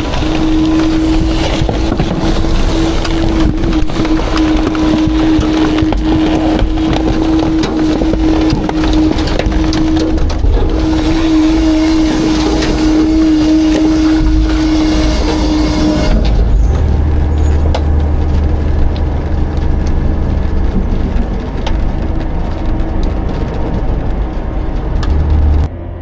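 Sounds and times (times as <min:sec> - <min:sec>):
garbage truck hydraulics whining: 0:00.0 - 0:19.0
trash crunching: 0:00.0 - 0:25.7
low rumble: 0:00.0 - 0:26.0.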